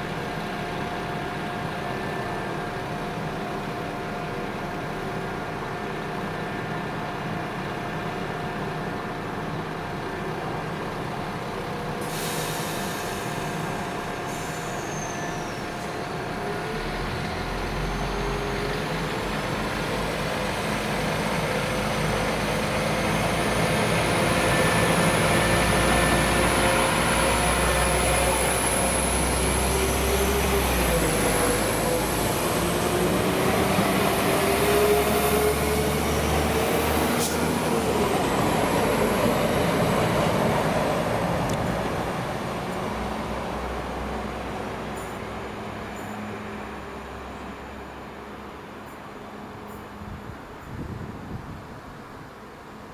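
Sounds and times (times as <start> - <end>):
diesel train engines whining: 0.0 - 52.9
wheels rumbling on rails: 0.0 - 52.9.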